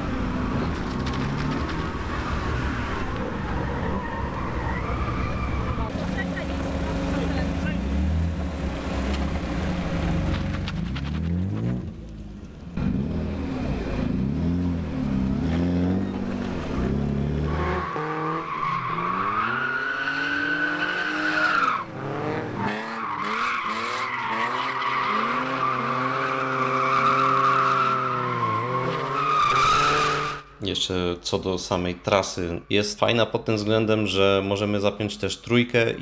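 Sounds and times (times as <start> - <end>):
car engines revving: 0.0 - 30.6
high tyre squeal: 2.1 - 5.9, 17.5 - 22.0, 22.6 - 30.5.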